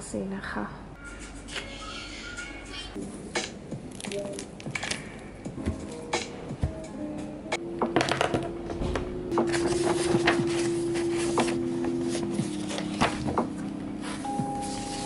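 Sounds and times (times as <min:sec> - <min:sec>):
soft background music: 0:01.0 - 0:15.0
paper pages rustling: 0:03.9 - 0:05.0, 0:09.3 - 0:15.0.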